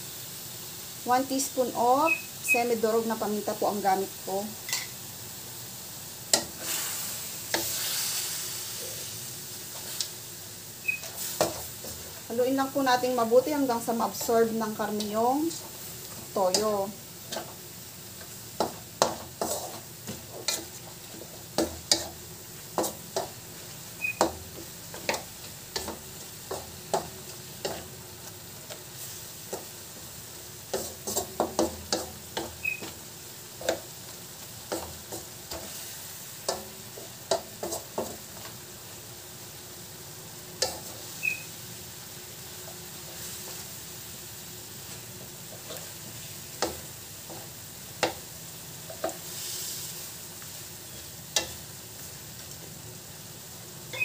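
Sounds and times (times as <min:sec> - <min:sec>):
meat sizzling in a wok: 0:00.0 - 0:54.0
wooden spatula scraping a pan: 0:10.9 - 0:17.6, 0:18.2 - 0:23.5, 0:24.1 - 0:29.8, 0:30.6 - 0:38.6, 0:42.6 - 0:43.7, 0:44.8 - 0:48.2.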